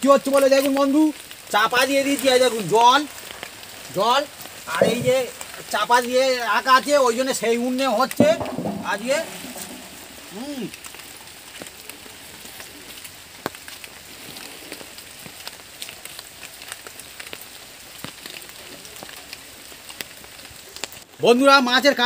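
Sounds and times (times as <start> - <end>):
steady rain: 0.0 - 22.0
drops ticking on surfaces: 4.5 - 5.8, 8.1 - 10.9.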